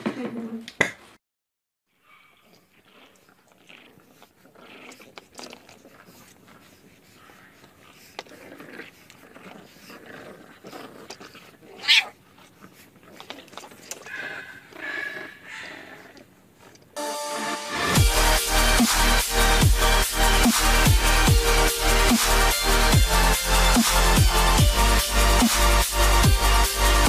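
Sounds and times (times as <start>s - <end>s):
dog making sounds: 2.2s - 17.0s.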